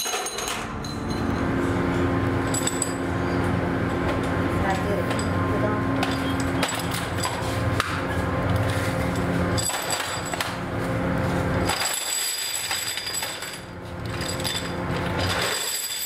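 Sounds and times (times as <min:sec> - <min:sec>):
low hum: 0:00.1 - 0:15.4.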